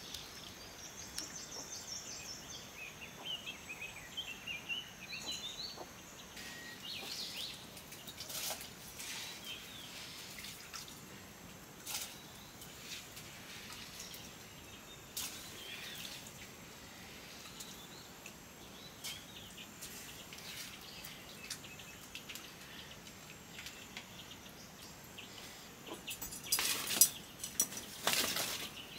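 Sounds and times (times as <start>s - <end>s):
clicks and water drips: 0.0s - 1.4s, 6.8s - 9.1s, 10.3s - 16.6s, 17.4s - 24.2s
small birds chirping: 0.0s - 28.9s
steady background hiss: 0.0s - 28.9s.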